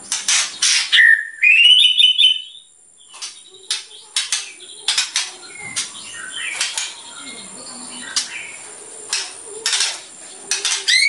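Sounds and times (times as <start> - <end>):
bird whistling: 0.6 - 2.7, 5.5 - 8.6.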